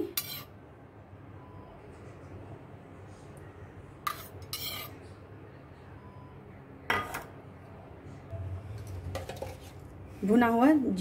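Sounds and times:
spoon scraping metal plate: 0.0s - 0.5s, 4.1s - 5.0s.

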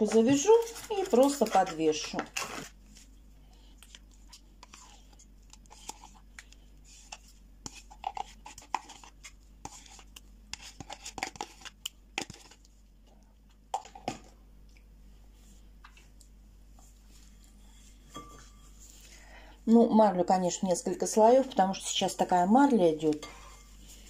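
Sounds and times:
spoon scraping container: 0.0s - 2.8s, 3.9s - 6.2s, 6.9s - 12.6s.

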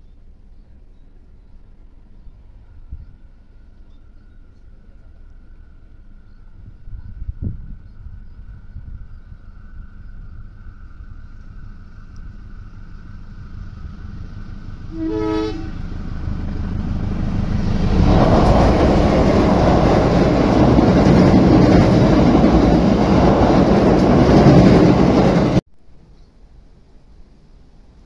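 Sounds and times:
train rumble and wheel clatter: 0.0s - 25.7s
locomotive horn blast: 14.7s - 16.3s.

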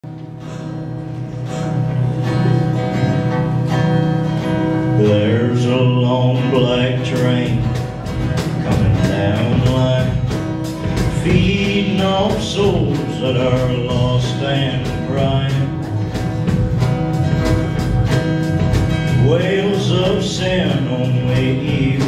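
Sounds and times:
acoustic guitar strumming: 0.0s - 22.0s
person singing: 4.9s - 15.8s, 19.1s - 22.0s.

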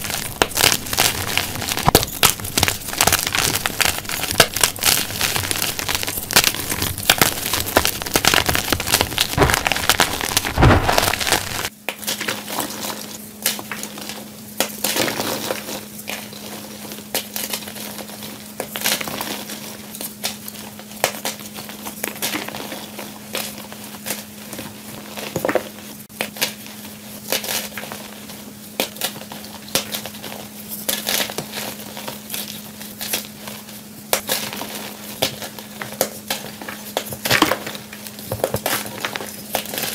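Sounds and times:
chalk crunching by hand: 0.0s - 11.7s
steady low hum: 0.0s - 11.8s.

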